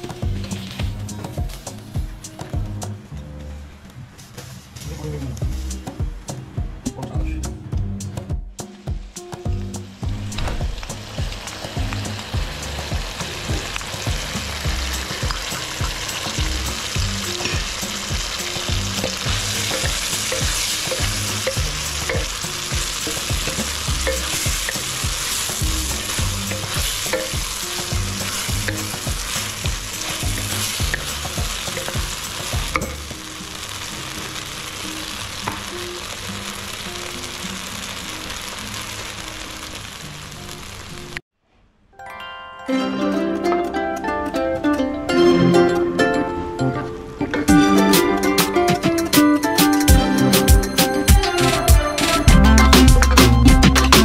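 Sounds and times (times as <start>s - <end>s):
food sizzling in a wok: 0.0s - 2.5s, 8.7s - 41.2s.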